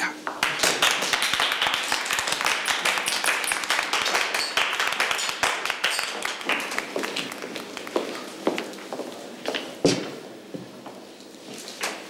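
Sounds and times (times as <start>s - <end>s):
people applauding: 0.2s - 8.7s.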